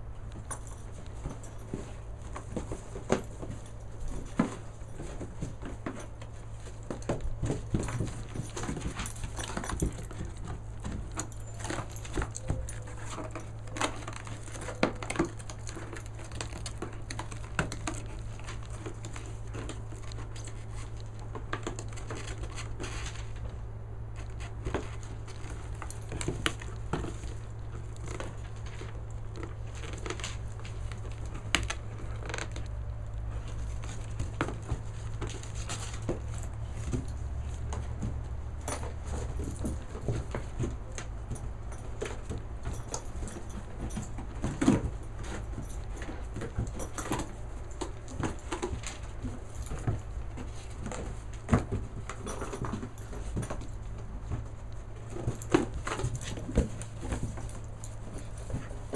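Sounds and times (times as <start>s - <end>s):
puppy chewing cardboard: 0.0s - 58.9s.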